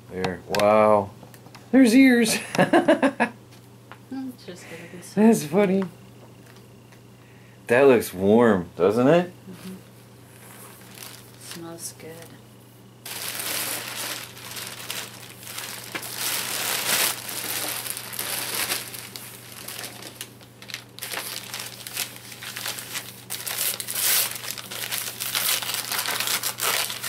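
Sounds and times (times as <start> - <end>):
plastic bag crinkling: 10.7 - 11.8, 13.0 - 27.0.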